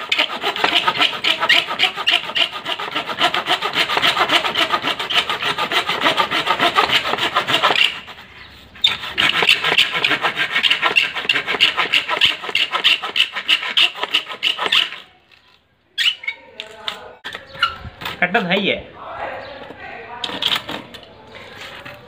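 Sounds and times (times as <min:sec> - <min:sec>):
hand saw cutting wood: 0:00.0 - 0:15.1.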